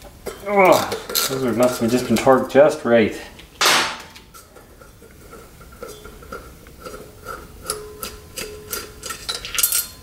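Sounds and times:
metal reservoir ringing: 0:05.7 - 0:10.0.

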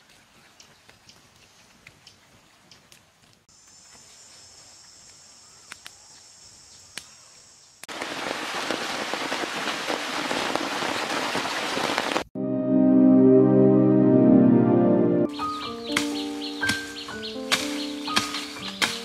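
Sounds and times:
insect hum: 0:03.5 - 0:07.9
wood fire crackling: 0:07.9 - 0:12.3
fanning with leaves: 0:15.4 - 0:19.0.

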